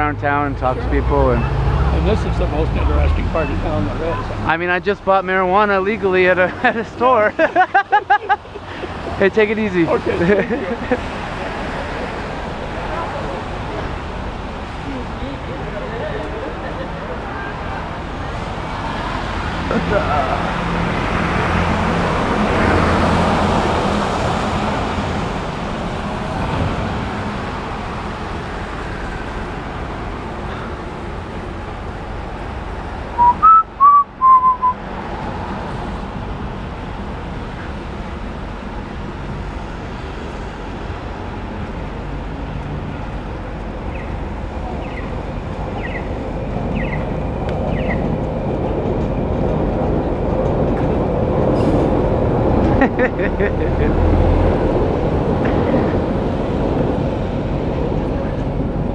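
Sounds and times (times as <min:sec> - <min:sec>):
tyres hissing on wet street: 0:00.9 - 0:33.3
whistled notes: 0:33.2 - 0:34.8.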